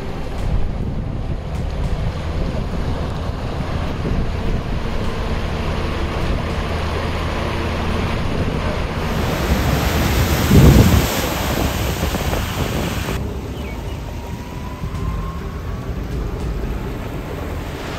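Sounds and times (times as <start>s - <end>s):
low engine hum: 0.0s - 17.9s
wind buffeting microphone: 0.0s - 17.9s
floodwater rushing: 4.6s - 17.9s.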